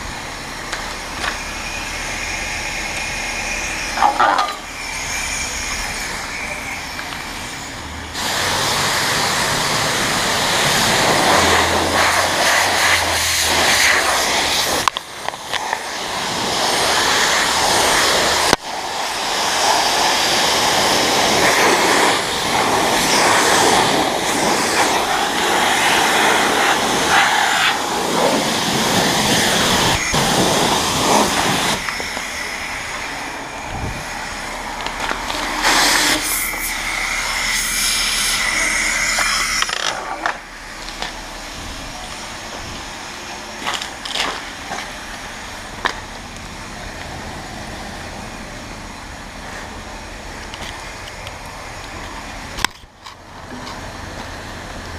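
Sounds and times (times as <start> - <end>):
low hum: 0.0 - 14.5, 28.6 - 54.9
pressure washer spraying water: 0.0 - 48.6.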